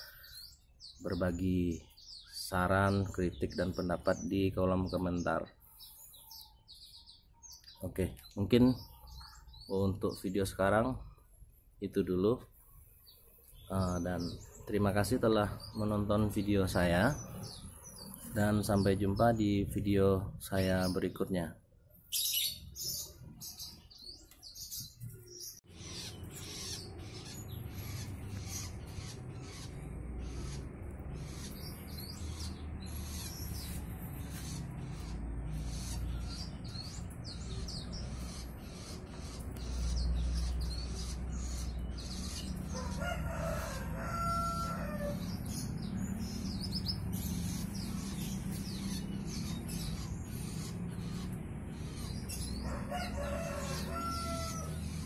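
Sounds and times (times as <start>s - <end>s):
canaries chirping: 0.0s - 55.0s
rooster crowing: 42.7s - 45.4s, 52.6s - 54.9s.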